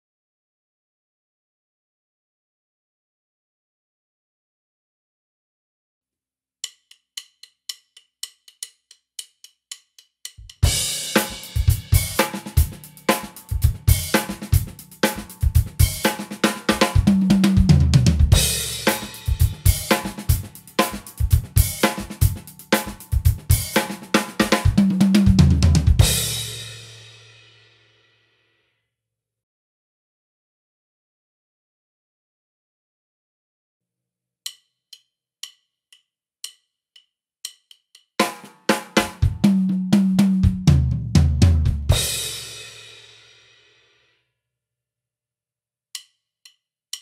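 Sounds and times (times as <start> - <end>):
count-in ticks: 6.6 - 10.7, 34.4 - 38.3, 45.9 - 47.0
drum kit groove: 10.3 - 27.8, 38.2 - 43.7
drum fill: 10.4 - 27.2, 38.2 - 43.0.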